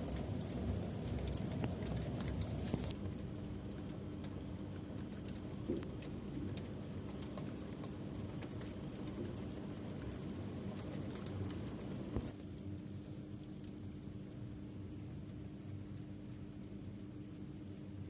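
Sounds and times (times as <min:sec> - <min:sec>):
heavy rain: 0:00.0 - 0:12.4
raindrops ticking on window glass: 0:00.0 - 0:18.0.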